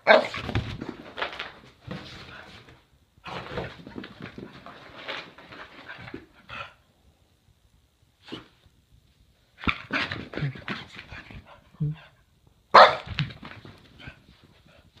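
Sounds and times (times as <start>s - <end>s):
dog barking: 0.0s - 0.4s, 12.7s - 13.1s.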